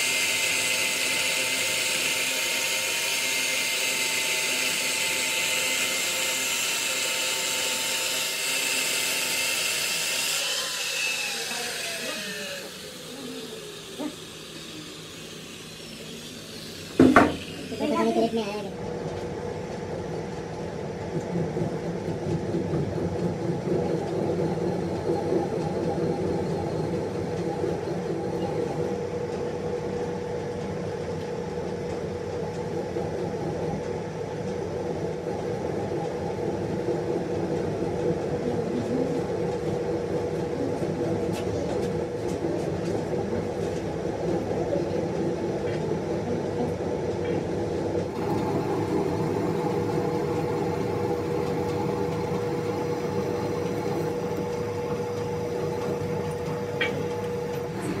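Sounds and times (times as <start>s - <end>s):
metal lathe running: 0.0s - 18.7s, 48.0s - 58.0s.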